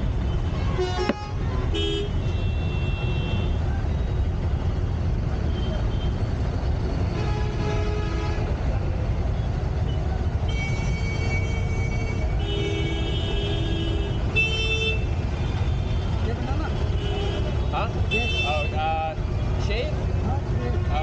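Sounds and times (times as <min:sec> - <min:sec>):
road traffic rumble: 0:00.0 - 0:21.0
vehicle horns honking: 0:00.4 - 0:03.6, 0:06.9 - 0:08.6, 0:10.4 - 0:19.0.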